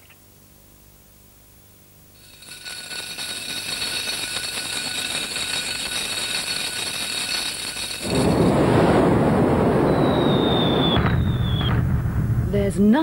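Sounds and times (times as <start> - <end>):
fast continuous rattle: 2.2 - 9.5.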